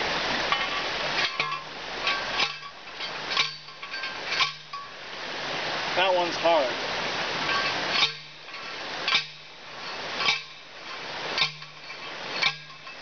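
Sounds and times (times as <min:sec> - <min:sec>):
post driver clanging on steel post: 0:00.5 - 0:05.0, 0:07.5 - 0:13.0.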